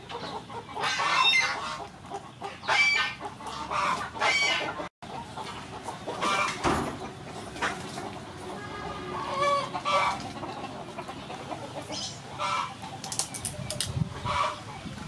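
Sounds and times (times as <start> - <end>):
chickens clucking: 0.0 - 15.0
sharp clicks: 13.0 - 14.0.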